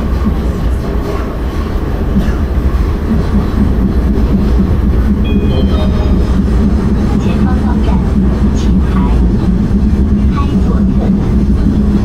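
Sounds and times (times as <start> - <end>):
train wheels rumbling: 0.0 - 12.0
brief high tones: 5.2 - 6.5.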